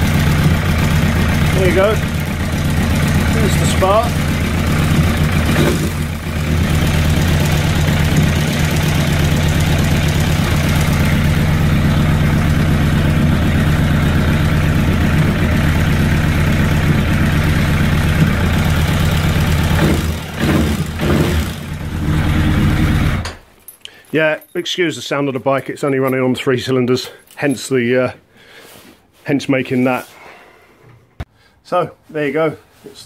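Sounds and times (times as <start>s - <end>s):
motorcycle engine idling rough: 0.0s - 23.3s.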